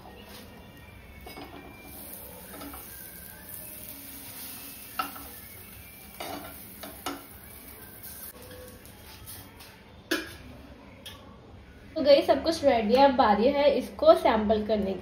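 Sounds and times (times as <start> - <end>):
buns sizzling in a frying pan: 1.5 - 9.4.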